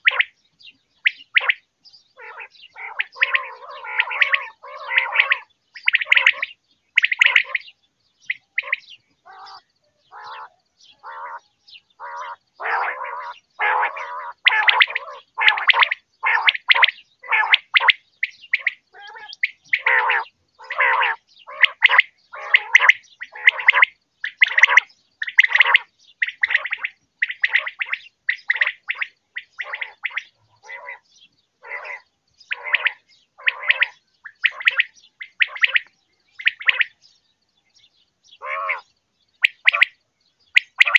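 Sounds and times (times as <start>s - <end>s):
quail calling: 0.0s - 0.4s, 1.0s - 37.0s, 38.3s - 40.9s.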